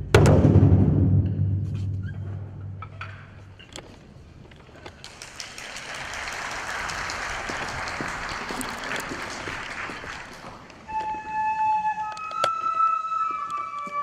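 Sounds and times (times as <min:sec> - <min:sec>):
audience applauding: 0:05.0 - 0:10.9.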